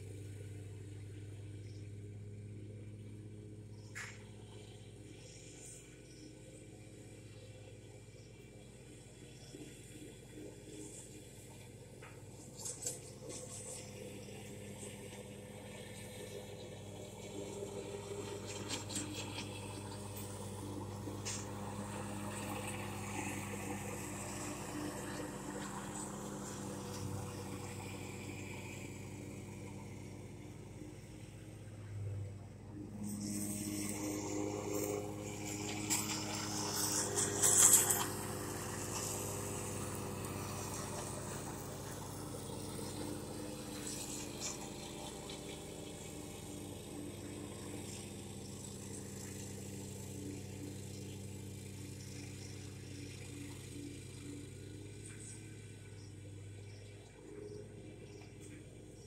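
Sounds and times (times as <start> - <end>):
low motor hum: 0.0 - 59.0.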